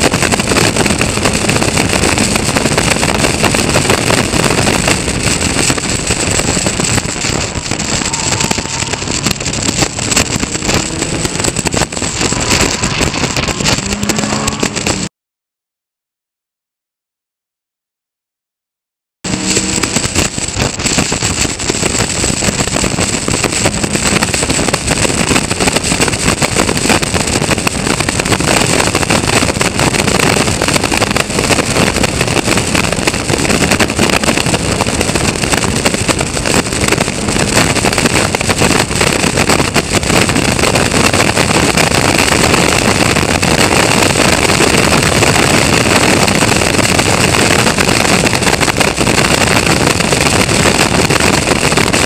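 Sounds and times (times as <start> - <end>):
race car engine running hard: 0.0 - 15.1, 19.3 - 41.8
wind rush on microphone: 0.0 - 15.1, 19.3 - 52.0.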